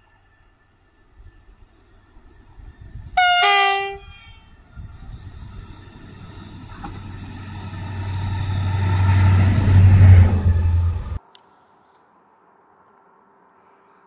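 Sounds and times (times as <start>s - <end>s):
diesel locomotive engine hum: 0.0s - 11.2s
harsh horn call: 3.2s - 4.2s.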